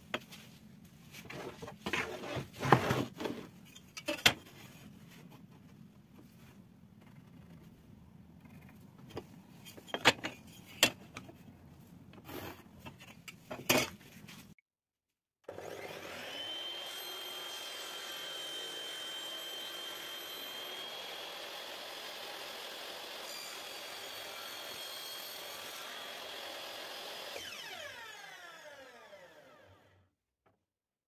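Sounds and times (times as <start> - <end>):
table saw running: 15.5 - 30.0.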